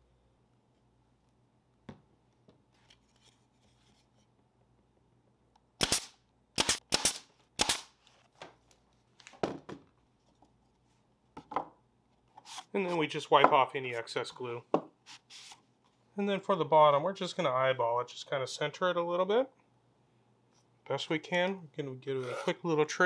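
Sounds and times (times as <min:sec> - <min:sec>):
nail gun shots: 0:05.8 - 0:07.9.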